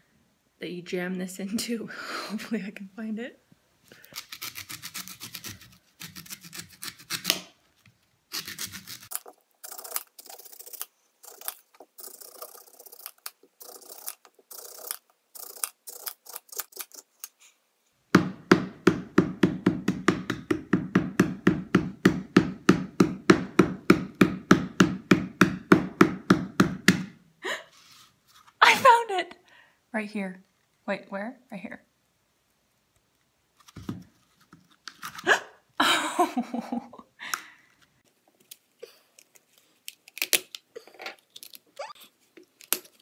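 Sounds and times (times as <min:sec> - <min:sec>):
knife scraping coconut husk: 0:04.1 - 0:07.5, 0:08.3 - 0:17.1.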